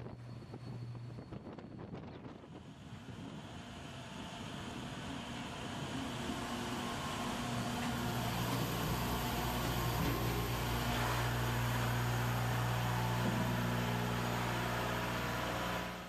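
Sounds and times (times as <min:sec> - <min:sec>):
engine room machinery drone: 0:00.0 - 0:16.0.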